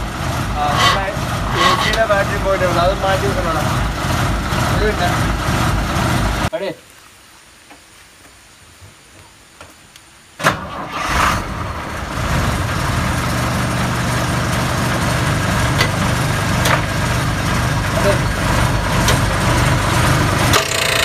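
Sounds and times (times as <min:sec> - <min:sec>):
bus engine starting and idling: 0:00.0 - 0:06.5, 0:10.4 - 0:21.0.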